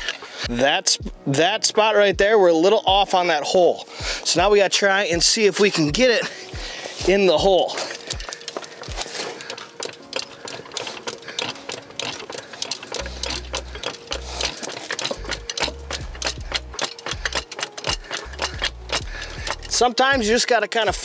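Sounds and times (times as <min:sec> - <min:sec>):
metal clicks and knocks: 0:07.1 - 0:21.0
low thumping rumbles: 0:15.2 - 0:20.3.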